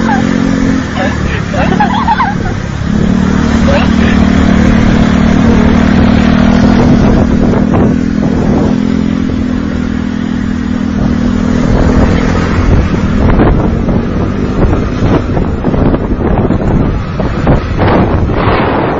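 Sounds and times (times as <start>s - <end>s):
wind buffeting on microphone: 3.9s - 18.9s.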